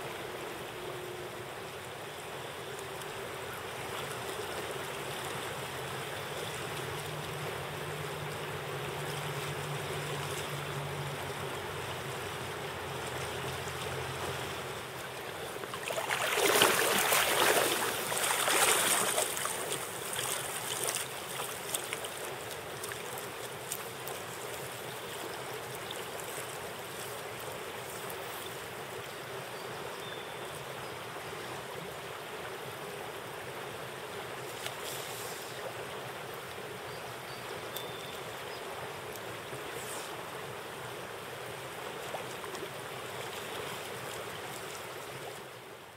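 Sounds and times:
river water rushing: 0.0 - 45.9
fish splashing in water: 15.7 - 23.9.

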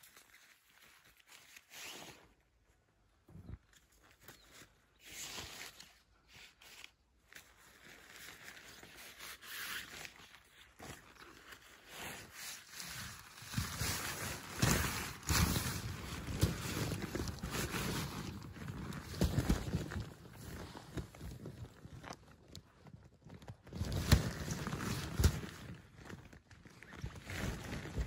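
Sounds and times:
tent fabric rustling: 0.0 - 2.7, 3.9 - 28.0.

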